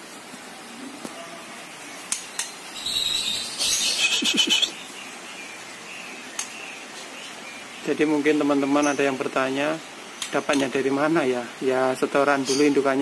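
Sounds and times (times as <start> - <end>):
harsh rattling bird call: 2.0 - 11.0, 12.3 - 13.0
bird calling: 2.2 - 7.9.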